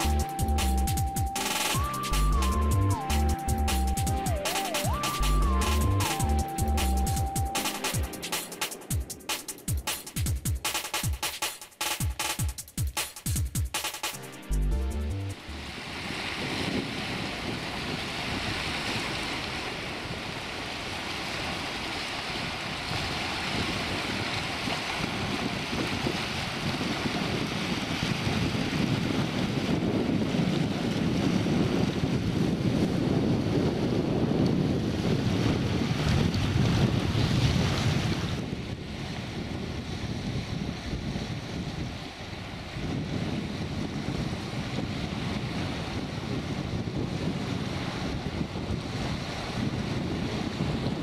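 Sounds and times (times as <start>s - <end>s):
wind buffeting microphone: 15.6s - 51.0s
small waves washing over rocks: 15.7s - 31.9s.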